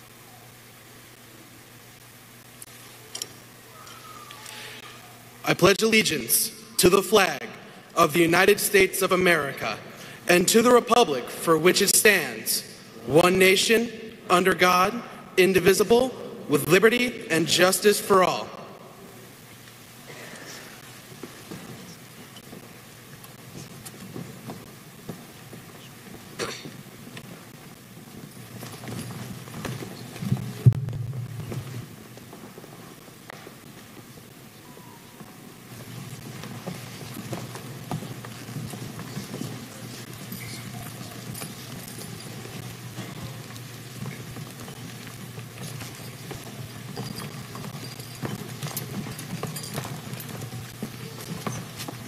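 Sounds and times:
crowd rustle and shuffle: 0:00.0 - 0:52.0
footsteps: 0:18.1 - 0:52.0.

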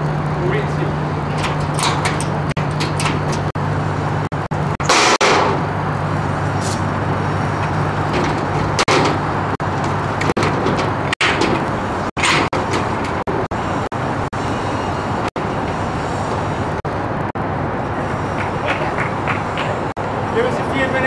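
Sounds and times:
broad rushing noise: 0:00.0 - 0:21.0.

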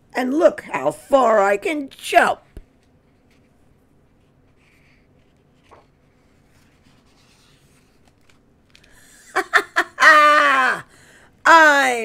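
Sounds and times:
book page turning: 0:02.5 - 0:09.0.

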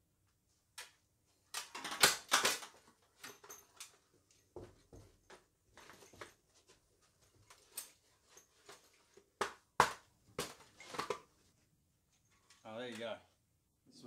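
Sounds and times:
armour plates clinking: 0:01.6 - 0:06.5.

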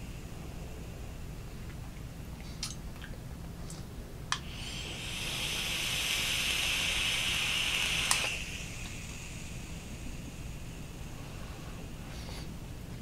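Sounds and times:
e-cigarette hissing: 0:04.4 - 0:12.6.

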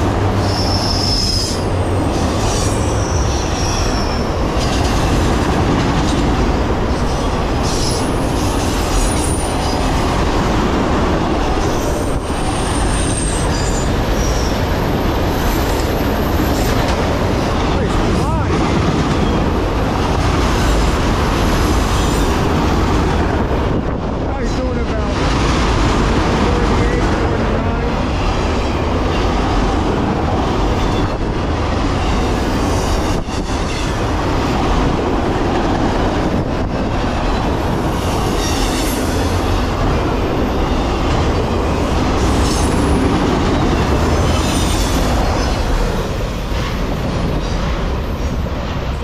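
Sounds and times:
train wheels rumbling on rail: 0:00.0 - 0:49.0
high wheel squeals: 0:00.4 - 0:04.3, 0:11.6 - 0:14.6.

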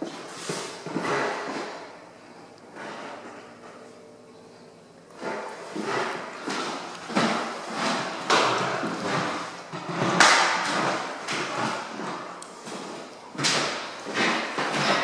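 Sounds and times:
footsteps on hardwood floor: 0:05.2 - 0:15.0.

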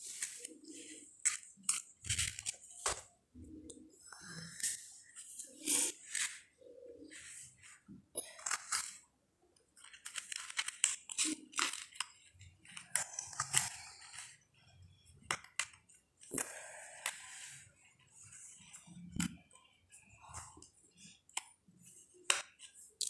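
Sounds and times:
puzzle pieces scraping on paper: 0:00.0 - 0:02.8.

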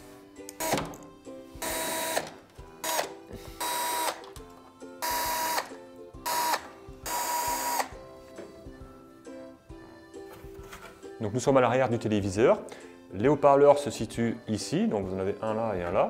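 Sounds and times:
background music: 0:00.0 - 0:16.0
cordless drill whirring: 0:01.6 - 0:02.2, 0:02.8 - 0:04.2, 0:05.0 - 0:05.7, 0:06.3 - 0:07.9.

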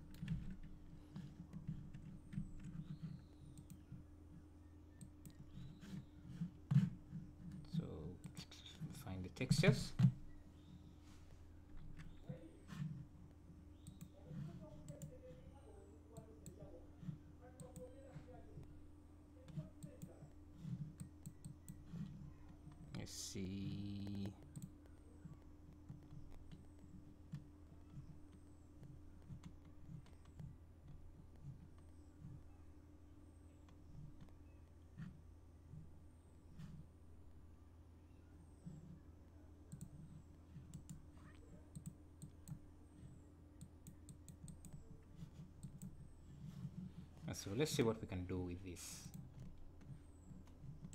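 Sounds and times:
computer mouse clicks: 0:00.0 - 0:04.0, 0:04.9 - 0:06.0, 0:13.7 - 0:14.2, 0:14.8 - 0:15.2, 0:17.6 - 0:17.9, 0:19.4 - 0:22.1, 0:23.9 - 0:31.9, 0:39.7 - 0:46.0
low electrical hum: 0:00.0 - 0:50.9.

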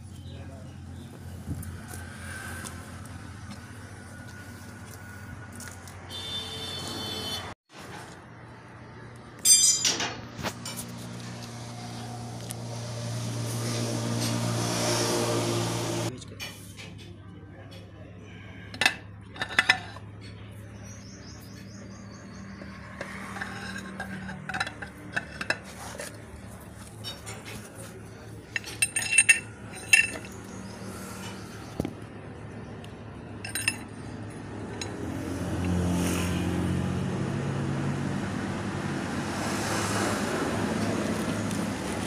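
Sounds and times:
metal parts clinking: 0:09.4 - 0:10.8, 0:23.3 - 0:25.6, 0:28.4 - 0:30.5, 0:33.4 - 0:34.0.

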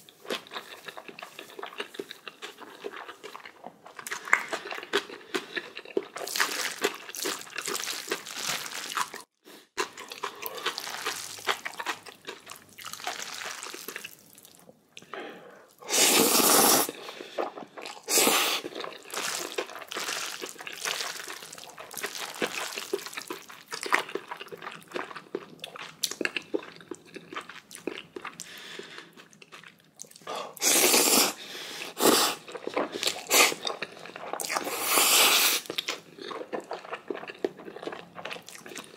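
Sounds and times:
chewing and crunching: 0:00.0 - 0:15.2, 0:16.9 - 0:30.3, 0:32.2 - 0:38.9
slurping noodles: 0:15.8 - 0:23.1, 0:30.6 - 0:35.8.

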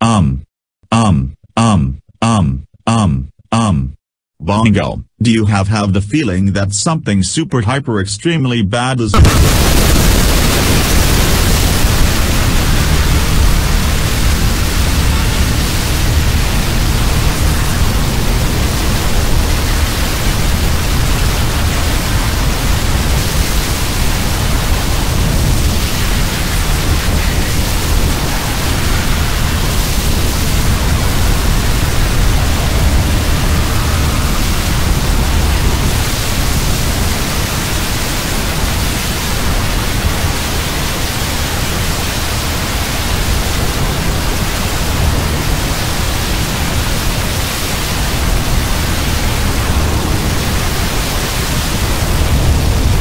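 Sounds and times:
cartoon falling wind effect: 0:24.0 - 0:37.4.

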